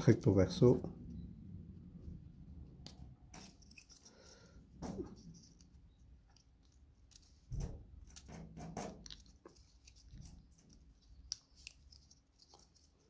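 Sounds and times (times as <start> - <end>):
wooden pieces clicking and scraping: 3.4 - 4.4, 8.9 - 13.0.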